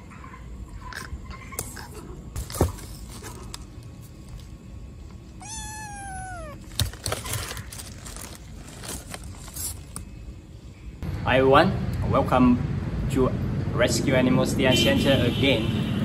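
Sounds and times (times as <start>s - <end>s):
rustling: 5.2s - 10.1s
kitten meowing: 5.4s - 6.7s.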